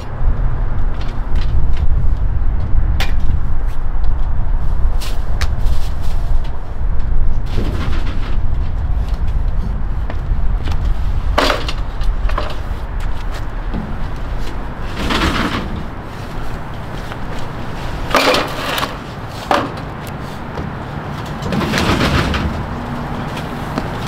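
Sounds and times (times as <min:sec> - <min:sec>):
low steady rumble: 0:00.0 - 0:24.0
hand truck set down: 0:11.4 - 0:12.6, 0:14.8 - 0:16.1, 0:18.0 - 0:23.4.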